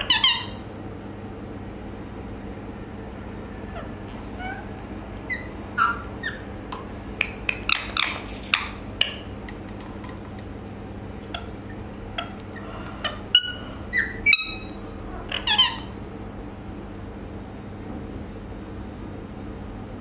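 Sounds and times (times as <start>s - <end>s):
parakeet chirps and squawks: 0.0s - 0.6s, 3.7s - 9.4s, 11.2s - 16.0s.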